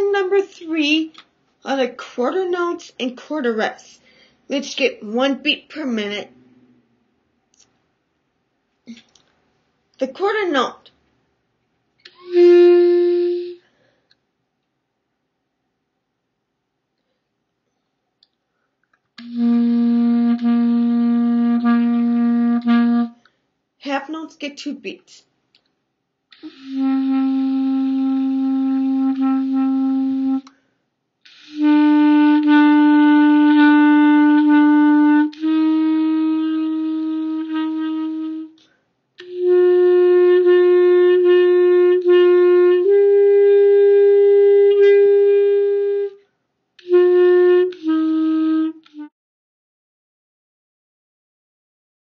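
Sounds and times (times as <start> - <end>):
clarinet playing long notes: 12.1 - 13.6, 19.2 - 23.2, 26.4 - 30.5, 31.3 - 38.6, 39.2 - 46.2, 46.8 - 49.1.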